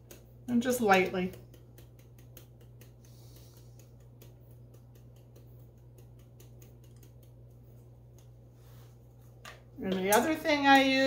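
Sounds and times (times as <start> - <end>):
spice sprinkling ticks: 0.0 - 8.4
low steady hum: 0.0 - 11.0.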